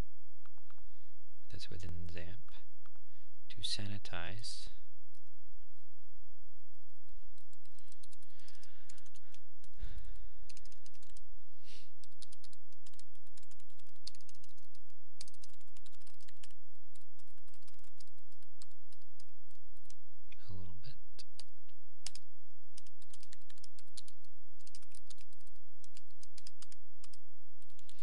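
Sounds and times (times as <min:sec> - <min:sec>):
steady low hum: 0:00.0 - 0:28.0
computer keyboard typing: 0:07.4 - 0:09.8, 0:10.5 - 0:11.2, 0:12.0 - 0:20.0, 0:21.2 - 0:22.2, 0:22.8 - 0:28.0.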